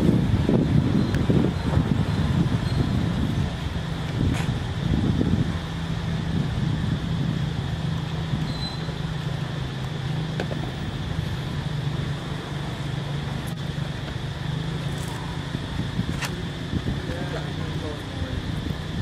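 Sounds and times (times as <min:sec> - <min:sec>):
low mechanical hum: 0:00.0 - 0:19.0
outdoor background noise: 0:00.0 - 0:19.0
high chirp: 0:08.4 - 0:09.0.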